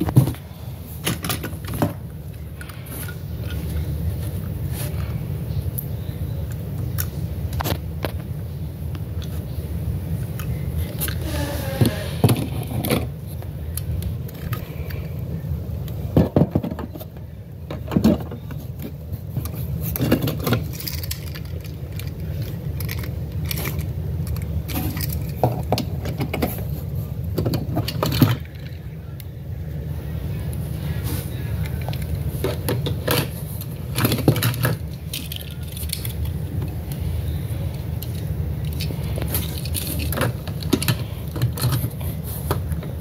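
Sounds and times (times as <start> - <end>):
steady low hum: 0.0 - 43.0
toy cars clinking and rattling: 19.4 - 29.0, 31.6 - 37.0, 37.7 - 42.7.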